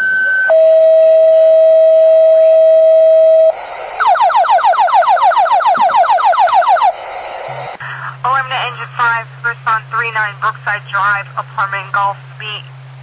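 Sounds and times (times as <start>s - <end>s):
steady radio alert tone: 0.0s - 12.7s
rapid falling-sweep alert tone: 0.6s - 7.8s.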